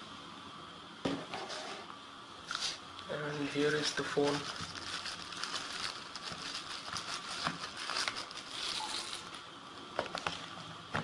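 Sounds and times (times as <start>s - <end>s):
plastic wrapping crinkling: 3.6s - 9.4s.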